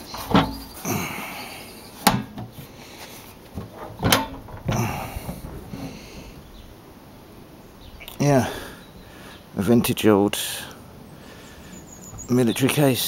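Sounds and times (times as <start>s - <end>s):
metal case clacks and knocks: 3.6s - 6.0s.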